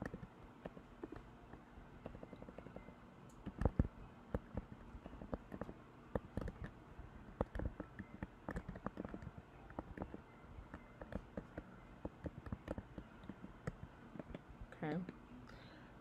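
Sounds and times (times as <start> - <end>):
keyboard key clicks: 7.4 - 14.4.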